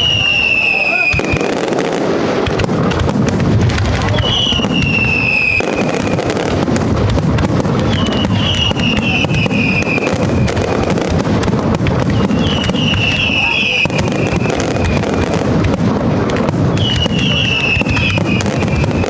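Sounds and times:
shrill firework whistles: 0:00.0 - 0:01.6, 0:04.0 - 0:06.5, 0:07.8 - 0:11.1, 0:12.1 - 0:15.4, 0:16.7 - 0:19.0
fireworks bursting and crackling: 0:00.0 - 0:19.0.

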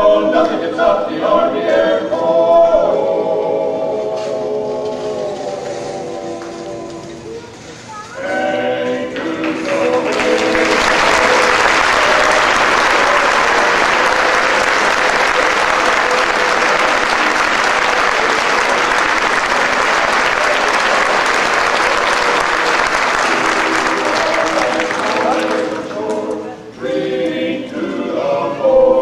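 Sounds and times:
audience applauding: 0:09.2 - 0:26.4.

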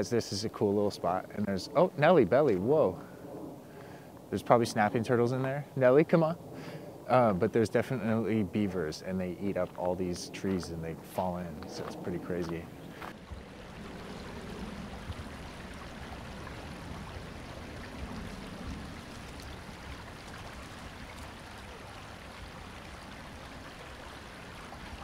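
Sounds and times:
creek water rushing: 0:08.0 - 0:25.0.

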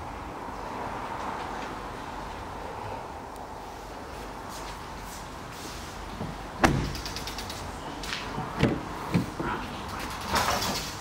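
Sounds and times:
car door thud: 0:06.6 - 0:07.0, 0:08.6 - 0:09.3.

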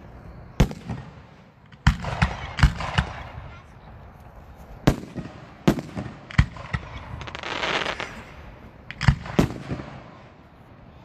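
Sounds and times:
firework bangs: 0:00.6 - 0:03.5, 0:04.8 - 0:10.2
hissing firework crackle: 0:04.9 - 0:10.2.

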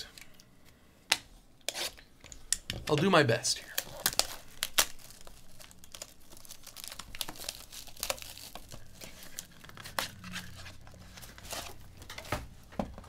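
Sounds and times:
plastic wrap crinkling and tearing: 0:03.6 - 0:12.1.

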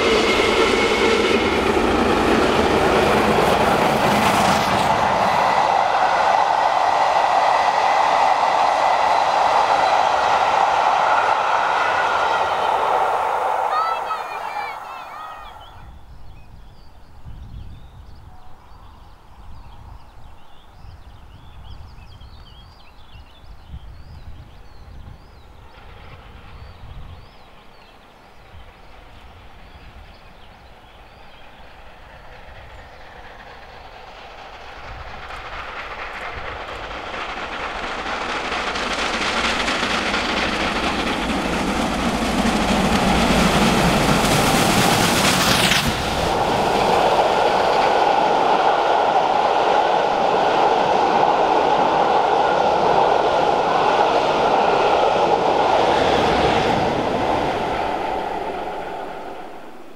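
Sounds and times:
steam locomotive passing: 0:00.0 - 0:59.9
train wheels clacking on rail joints: 0:25.6 - 0:59.5.

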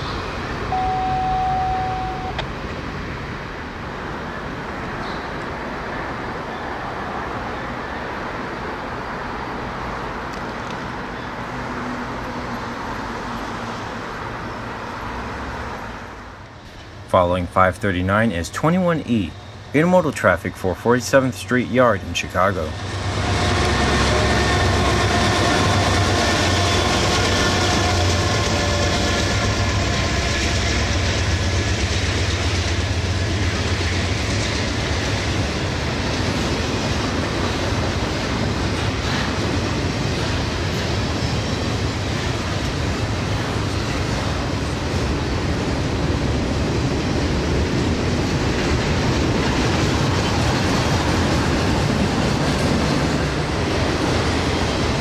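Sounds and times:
freight train rumbling past: 0:00.0 - 0:55.0
train whine: 0:00.0 - 0:55.0
train wheels clattering over rail joints: 0:23.2 - 0:55.0.

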